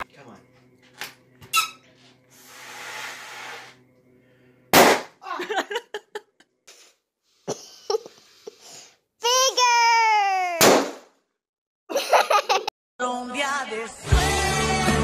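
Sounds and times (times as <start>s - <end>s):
balloon bursting bang: 4.7s - 5.2s, 10.6s - 11.1s.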